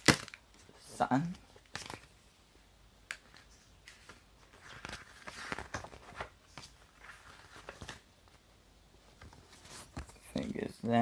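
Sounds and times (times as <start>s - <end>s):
packaging rustling: 3.2s - 8.1s.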